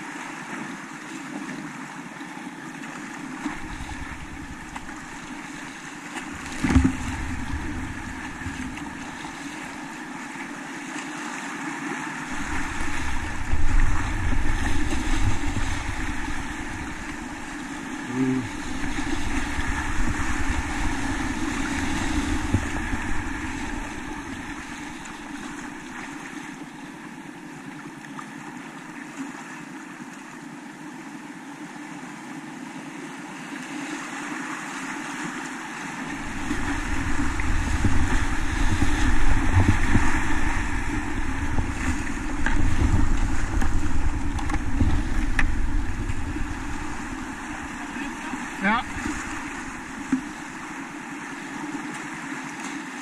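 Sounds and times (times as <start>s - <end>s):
river rushing and splashing: 0.0s - 53.0s
wind buffeting microphone: 3.5s - 10.2s, 12.2s - 26.4s, 36.0s - 51.3s.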